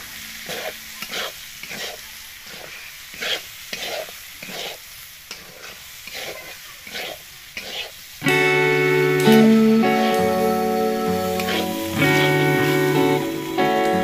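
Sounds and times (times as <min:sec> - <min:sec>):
low sizzle: 0:00.0 - 0:14.0
metal spatula scraping a pan: 0:00.4 - 0:08.0, 0:11.3 - 0:12.4.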